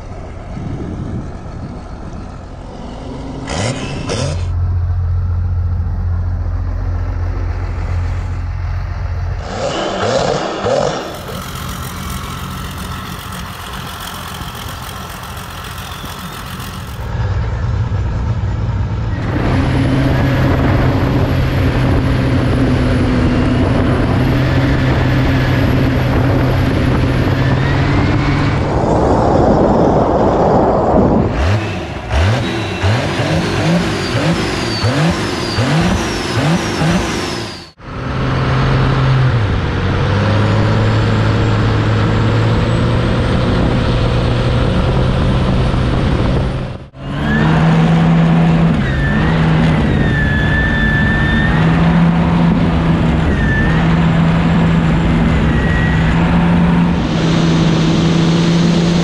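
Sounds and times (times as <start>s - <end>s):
boat diesel engine running: 4.5s - 27.2s.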